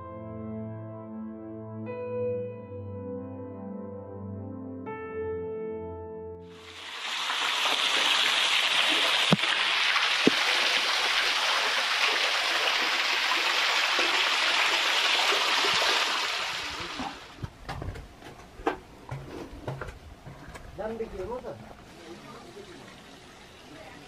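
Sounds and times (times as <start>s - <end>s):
water splashing over rocks: 6.6s - 17.3s.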